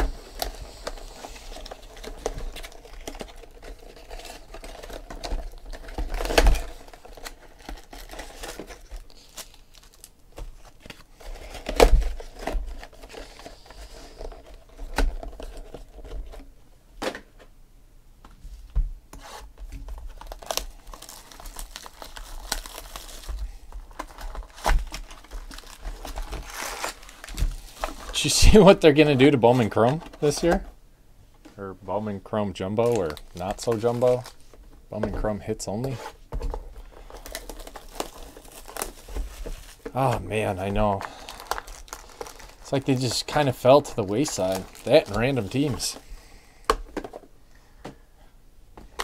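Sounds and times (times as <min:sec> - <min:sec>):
wrappers tearing and crinkling: 0:00.0 - 0:16.0, 0:20.0 - 0:30.6, 0:32.8 - 0:34.5, 0:36.8 - 0:46.0
plastic wrap crinkling: 0:00.0 - 0:16.4, 0:19.8 - 0:30.6, 0:32.4 - 0:47.3.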